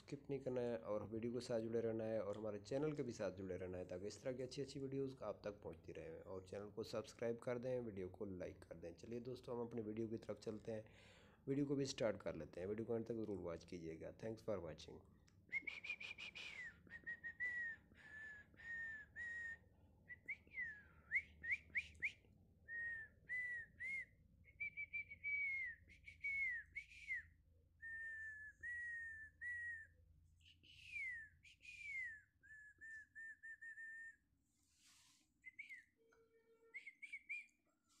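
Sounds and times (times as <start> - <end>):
person whistling a tune: 15.5 - 37.7.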